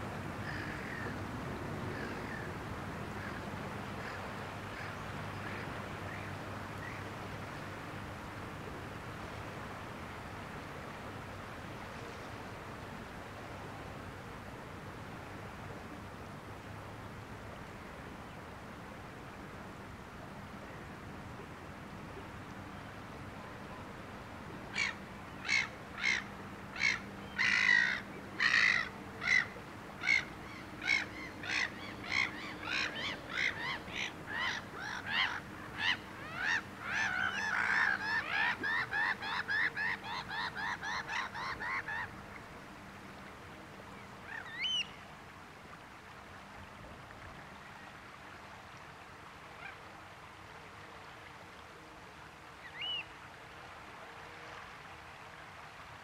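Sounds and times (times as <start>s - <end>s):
bird rising call: 44.3s - 45.0s, 52.6s - 53.1s.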